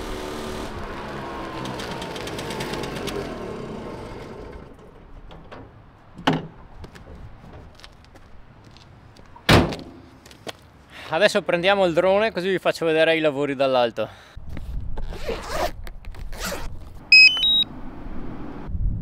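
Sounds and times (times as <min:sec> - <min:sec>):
small two-stroke engine running: 0:00.0 - 0:04.7
door slamming: 0:09.5 - 0:10.0.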